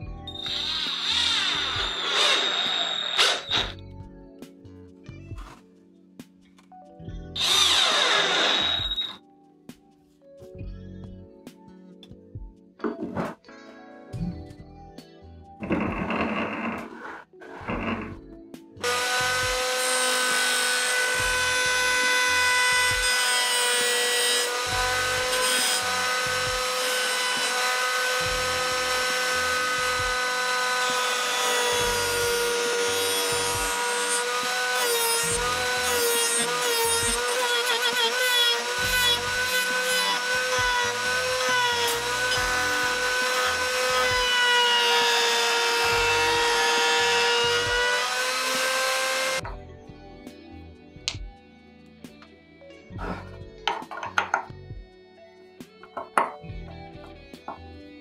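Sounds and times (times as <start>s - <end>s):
router high whine: 0.3s - 3.8s, 7.4s - 9.2s.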